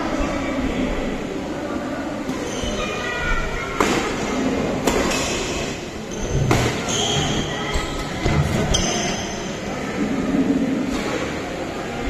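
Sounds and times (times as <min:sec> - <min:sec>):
indoor hall noise: 0:00.0 - 0:12.0
shoes squeaking: 0:06.1 - 0:09.5.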